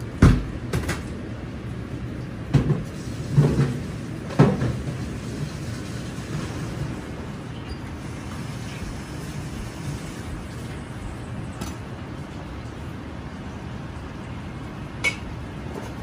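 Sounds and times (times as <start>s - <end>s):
low kitchen hum: 0.0s - 16.0s.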